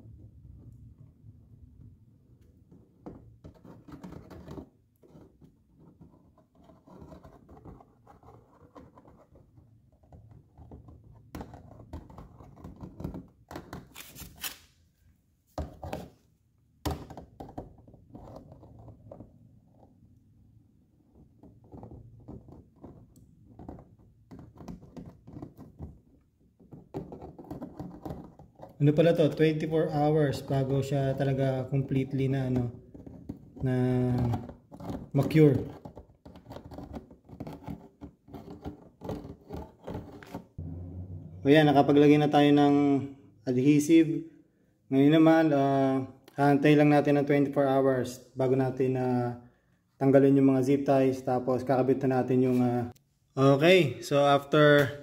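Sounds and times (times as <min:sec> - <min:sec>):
adhesive tube scraping and knocking: 0:02.4 - 0:14.6, 0:15.5 - 0:20.2, 0:20.9 - 0:41.5.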